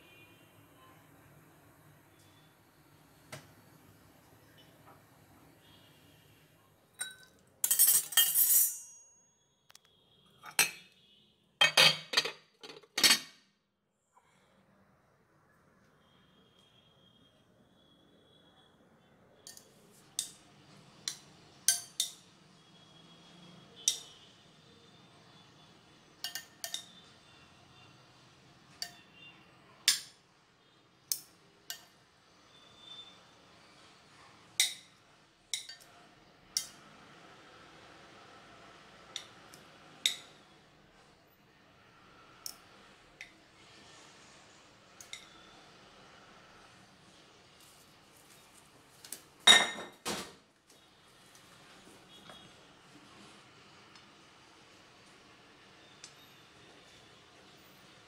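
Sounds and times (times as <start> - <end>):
utensil clinking on dishes: 7.0 - 9.0, 11.6 - 13.4, 26.2 - 27.0.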